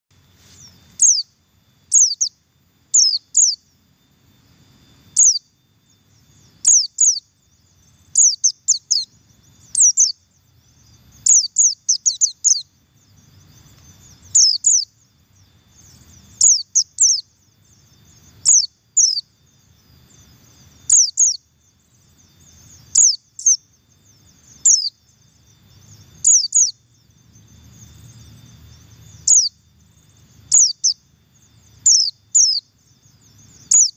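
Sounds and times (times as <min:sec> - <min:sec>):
bird chirping high double call: 0:00.6 - 0:01.3, 0:01.9 - 0:03.6, 0:05.2 - 0:05.5, 0:06.6 - 0:07.3, 0:14.3 - 0:14.9, 0:16.4 - 0:17.3, 0:18.4 - 0:19.3, 0:20.9 - 0:21.4, 0:22.9 - 0:23.6, 0:24.6 - 0:25.0, 0:26.2 - 0:26.8, 0:29.2 - 0:29.6, 0:30.5 - 0:31.0, 0:31.8 - 0:32.7, 0:33.7 - 0:33.9.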